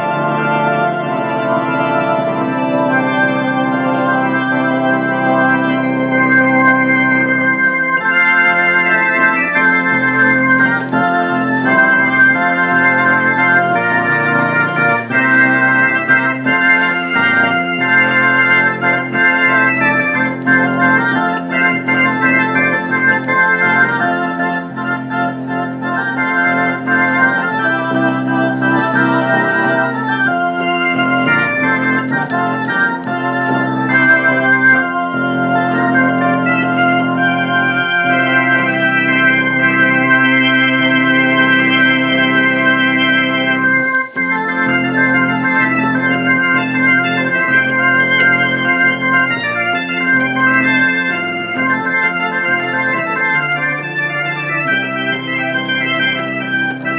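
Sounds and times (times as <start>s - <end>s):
theatre organ playing chords: 0.0s - 56.9s.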